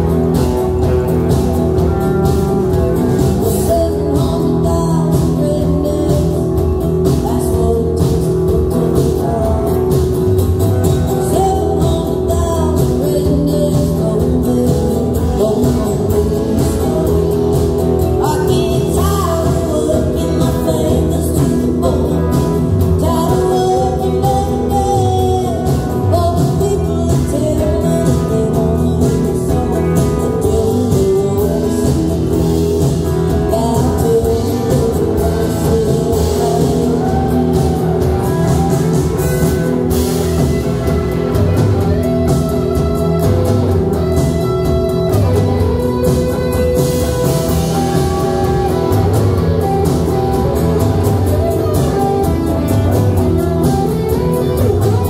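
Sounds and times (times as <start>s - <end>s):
live country-rock band: 0.0s - 55.0s
woman singing: 3.2s - 10.2s, 10.9s - 38.7s.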